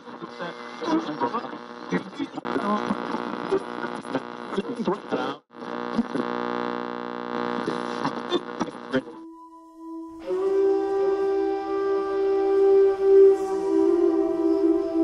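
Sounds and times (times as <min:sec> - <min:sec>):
static crackles: 0:00.0 - 0:09.2
garbled distorted voice: 0:00.9 - 0:06.3, 0:07.6 - 0:09.2
electrical buzz-hum: 0:05.5 - 0:15.0
steady tone: 0:09.0 - 0:15.0.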